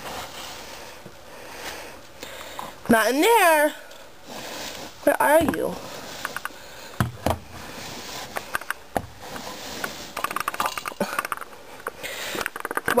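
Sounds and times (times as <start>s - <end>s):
wire cage being rummaged: 10.2s - 11.4s
light metallic clicks and rattles: 10.2s - 13.0s.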